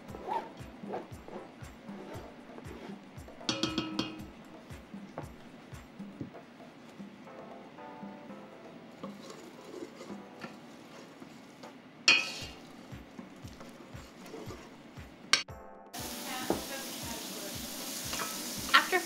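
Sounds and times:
wooden spoon stirring in pot: 0.0s - 7.2s, 8.7s - 15.4s
spoon clanking against pot: 2.7s - 5.0s, 12.1s - 14.7s
onions sizzling in oil: 12.1s - 12.9s, 16.0s - 19.0s.

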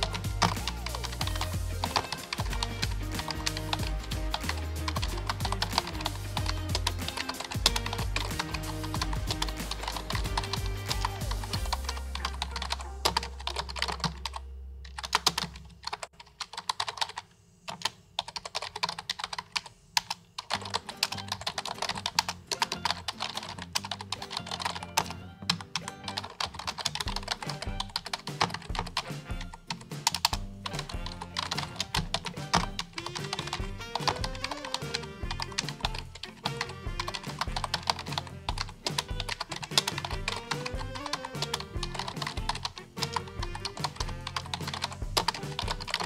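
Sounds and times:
background music with bass line: 0.0s - 14.6s, 26.9s - 46.0s
keyboard typing: 0.0s - 46.0s.

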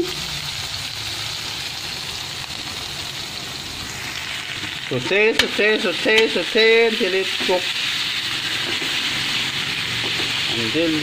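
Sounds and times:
meat sizzling in a wok: 0.0s - 11.0s.

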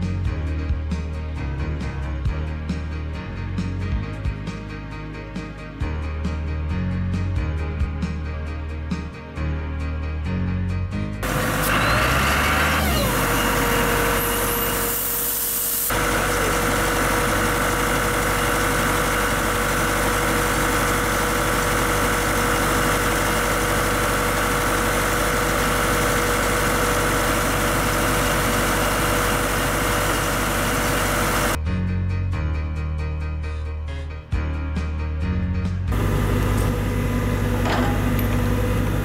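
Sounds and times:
air compressor engine running: 11.2s - 31.6s, 35.9s - 39.0s.

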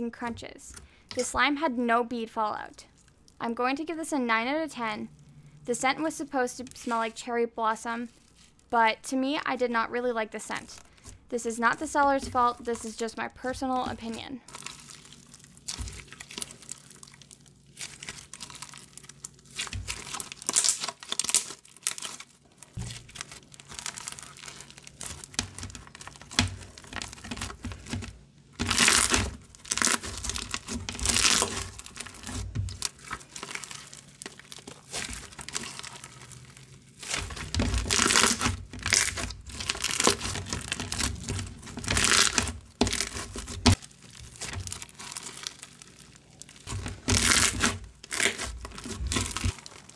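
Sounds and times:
bead slime crunching: 10.6s - 49.9s.

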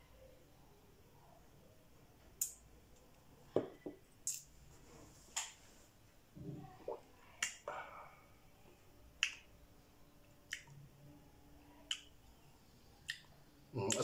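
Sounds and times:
mouth clicks and lip smacks: 2.4s - 2.6s, 6.8s - 7.8s, 9.2s - 9.5s, 10.4s - 10.8s, 11.8s - 12.1s, 13.0s - 14.0s.

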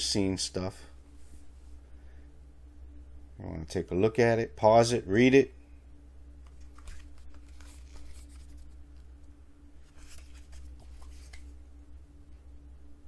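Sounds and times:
low steady hum: 0.0s - 13.0s
paper pages rustling: 6.4s - 9.1s, 9.8s - 11.6s.

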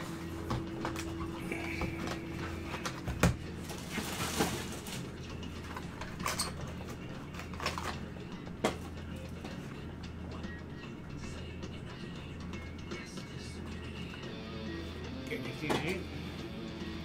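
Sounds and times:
cardboard rustling: 0.0s - 6.2s
plastic crinkling: 2.0s - 5.3s.

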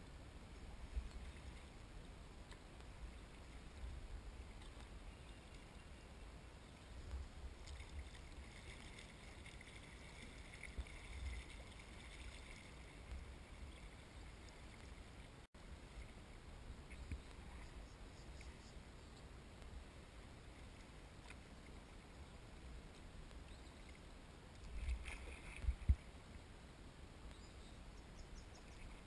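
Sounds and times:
water running past hull: 0.0s - 18.9s
paddle dipping in water: 6.8s - 15.3s
wind rumble on microphone: 24.7s - 26.2s.

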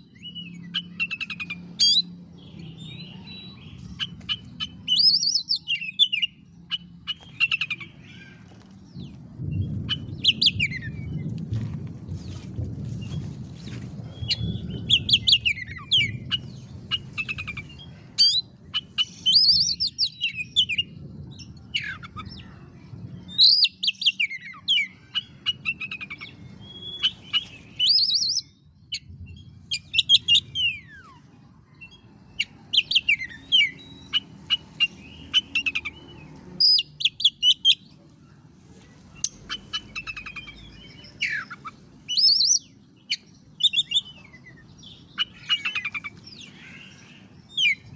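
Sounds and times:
songbird whistled phrases: 3.4s - 7.9s, 39.2s - 44.2s.

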